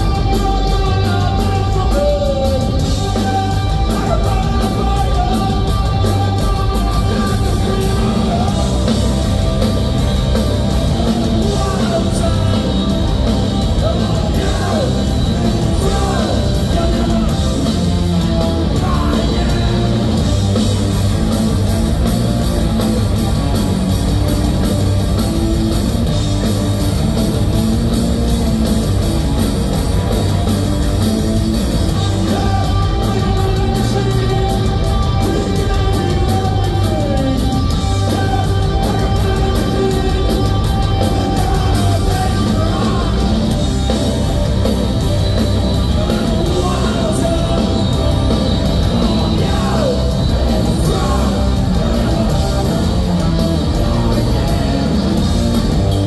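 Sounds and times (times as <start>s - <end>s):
heavy rock band playing: 0.0s - 56.0s
person singing: 31.9s - 43.5s.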